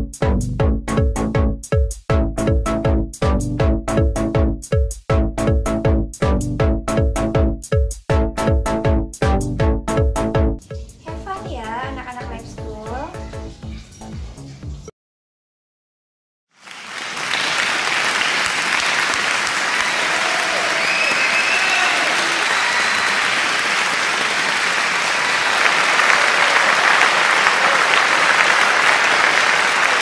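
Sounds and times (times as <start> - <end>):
audience applauding: 16.6 - 30.0.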